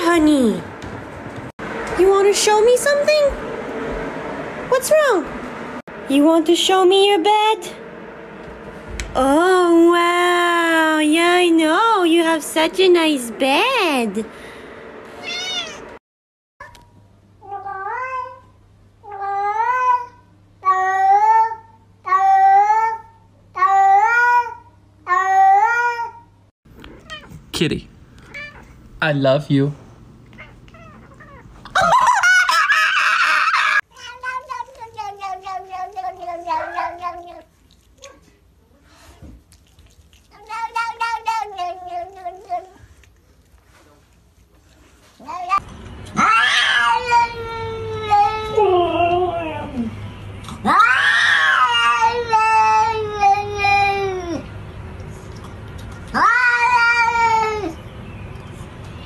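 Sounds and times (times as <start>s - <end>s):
cat yowling: 15.2s - 15.8s, 26.9s - 27.4s, 28.2s - 28.8s, 30.3s - 32.0s, 32.6s - 38.2s, 46.2s - 49.9s, 50.6s - 54.4s, 56.1s - 57.8s
cat meowing with falling pitch: 15.2s - 15.9s, 46.2s - 49.9s, 50.6s - 54.4s, 56.1s - 57.8s.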